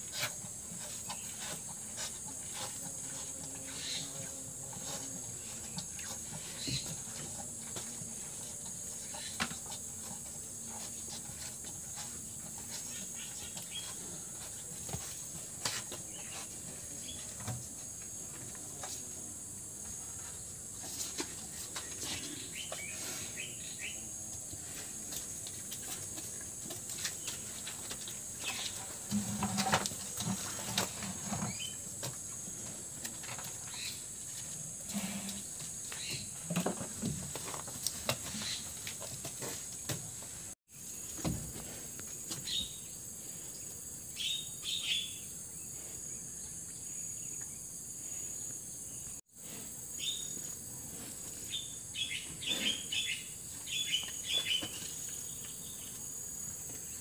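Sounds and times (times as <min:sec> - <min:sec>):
insect chorus: 0:00.0 - 0:57.0.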